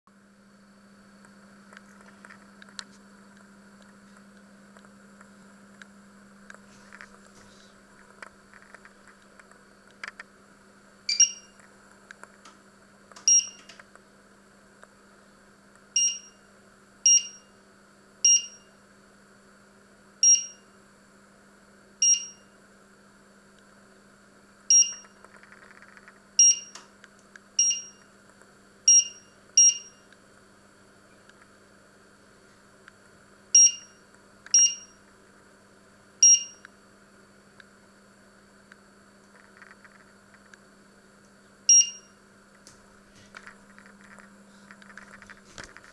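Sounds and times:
faint low hum: 0:00.2 - 0:45.9
short high beeps: 0:11.1 - 0:11.5, 0:27.6 - 0:28.0, 0:36.2 - 0:36.6, 0:41.7 - 0:42.1.

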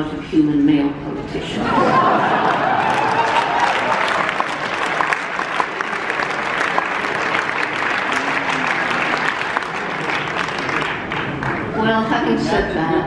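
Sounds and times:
audience applauding: 0:01.8 - 0:11.8.

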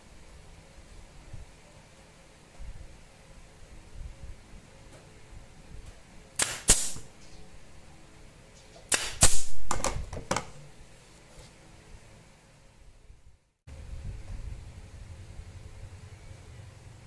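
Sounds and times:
nail gun shots: 0:06.4 - 0:07.1, 0:08.9 - 0:10.0.

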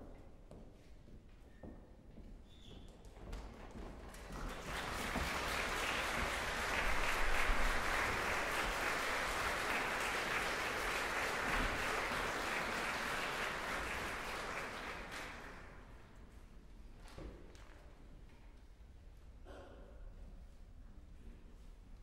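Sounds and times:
audience applauding: 0:04.2 - 0:16.0.

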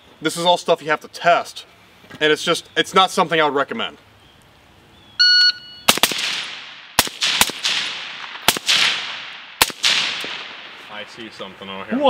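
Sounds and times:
shot timer beep: 0:05.2 - 0:05.9
rifle shots with echo: 0:05.9 - 0:11.1.

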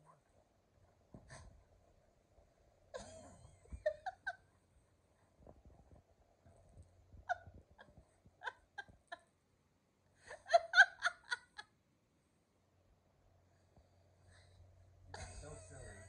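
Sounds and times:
person laughing: 0:10.3 - 0:11.6.

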